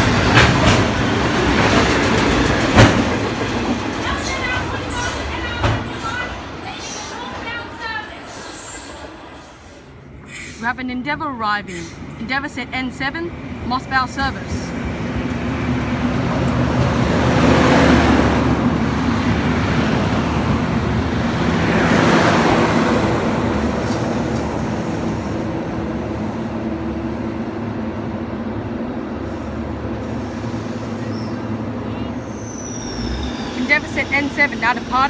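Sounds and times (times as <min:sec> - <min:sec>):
train wheel and rail noise: 0:00.0 - 0:35.0
diesel railcar engine drone: 0:08.4 - 0:35.0.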